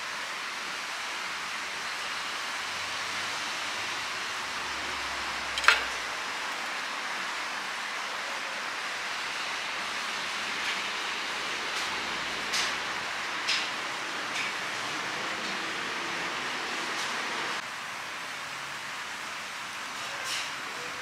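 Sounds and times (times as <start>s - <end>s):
tableware clink: 5.6s - 6.0s.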